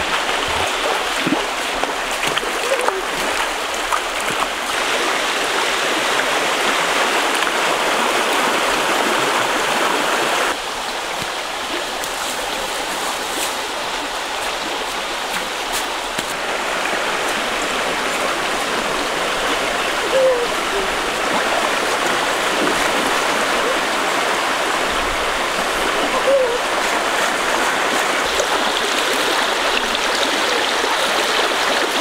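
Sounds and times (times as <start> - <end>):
stream water rushing: 0.0 - 32.0.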